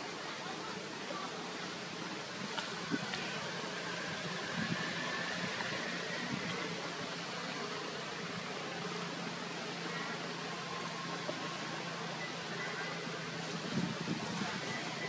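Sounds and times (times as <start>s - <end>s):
outdoor background hiss: 0.0s - 15.0s
faint steady high tone: 9.8s - 13.6s, 14.2s - 15.0s.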